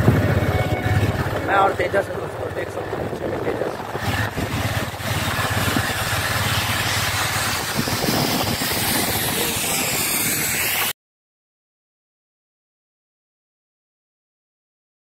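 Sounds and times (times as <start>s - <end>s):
motorcycle engine running: 0.0s - 10.2s
road noise: 0.0s - 10.9s
rushing wind: 0.0s - 10.9s.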